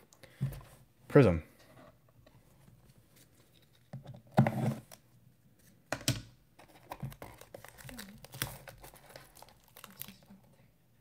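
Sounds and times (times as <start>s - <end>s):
shrink wrap crackling: 7.2s - 10.4s.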